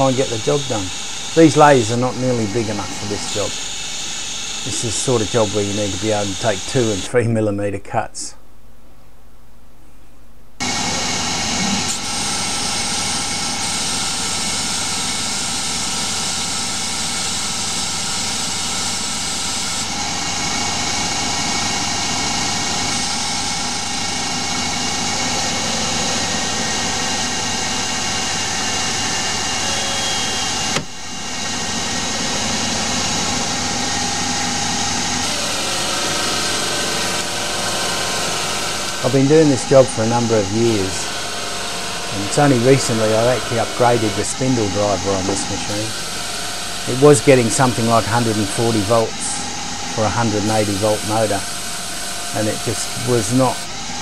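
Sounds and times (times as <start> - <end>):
lathe cutting metal: 0.0 - 7.1, 10.6 - 54.0
coolant spray hiss: 38.1 - 49.4, 50.0 - 53.6.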